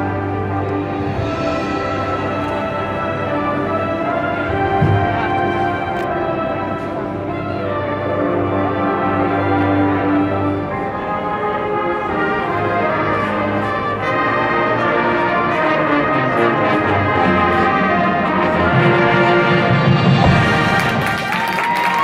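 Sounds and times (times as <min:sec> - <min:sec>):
percussion: 0:00.0 - 0:07.0, 0:17.2 - 0:22.0
marching band brass and winds: 0:00.0 - 0:22.0.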